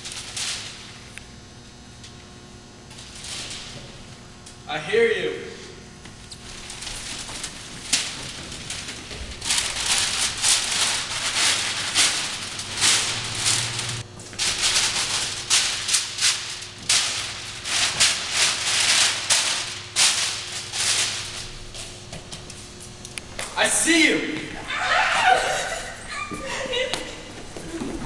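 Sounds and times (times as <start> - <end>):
rustling and crunching: 2.8 - 4.5, 6.1 - 23.1.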